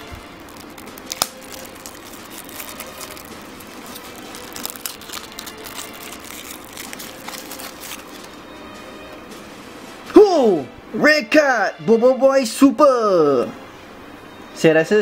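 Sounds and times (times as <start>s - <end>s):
plastic sachet crinkling and tearing: 0.0s - 8.4s.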